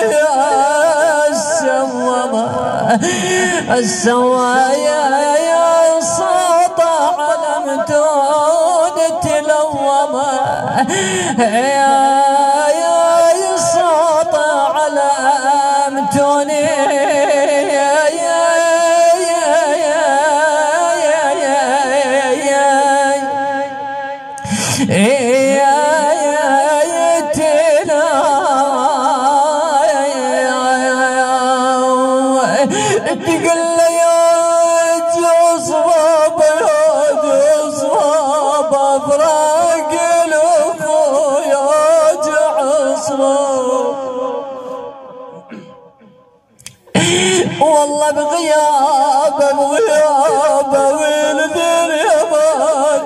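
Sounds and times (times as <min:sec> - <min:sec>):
man chanting into a microphone: 0:00.0 - 0:53.0
man breathing: 0:03.0 - 0:03.7, 0:10.8 - 0:11.4, 0:24.4 - 0:24.9, 0:32.7 - 0:33.1, 0:44.6 - 0:47.6.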